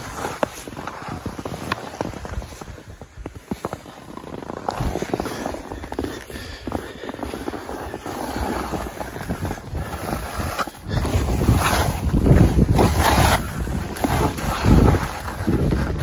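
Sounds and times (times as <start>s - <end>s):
skis scraping over snow: 0.0s - 16.0s
wind buffeting microphone: 7.9s - 16.0s.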